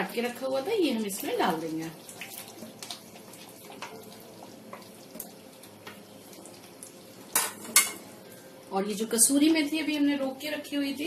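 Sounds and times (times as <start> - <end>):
gravy simmering in a pan: 0.1 - 9.4.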